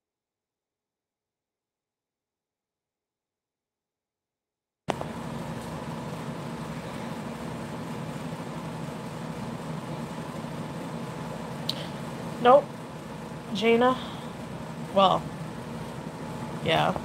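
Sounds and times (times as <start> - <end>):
faint steady hum: 4.9 - 17.0
low rumble and hiss: 4.9 - 17.0.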